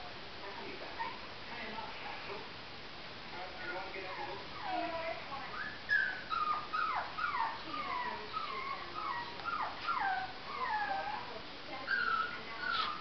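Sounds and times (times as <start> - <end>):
puppy whining: 3.6 - 11.3, 11.9 - 13.0.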